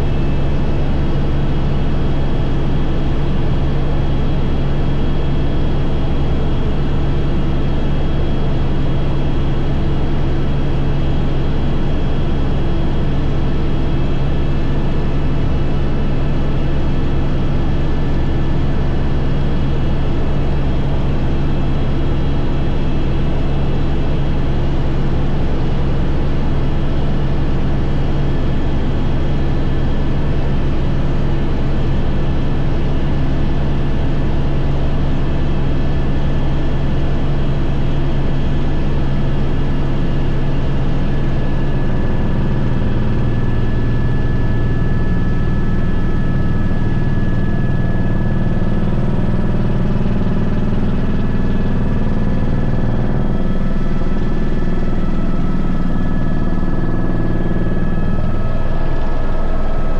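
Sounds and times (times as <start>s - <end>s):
helicopter rotor and turbine drone: 0.0s - 59.9s
thin high whine: 43.4s - 59.9s.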